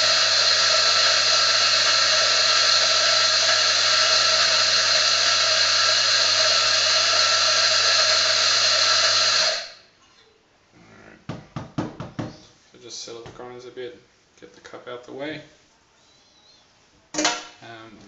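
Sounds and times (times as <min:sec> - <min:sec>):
coffee grinder running: 0:00.0 - 0:09.8.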